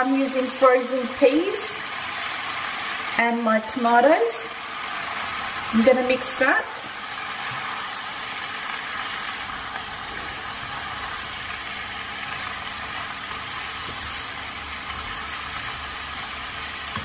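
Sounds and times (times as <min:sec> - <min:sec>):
vegetables sizzling in a wok: 0:00.0 - 0:17.0
spatula stirring in wok: 0:09.7 - 0:17.0.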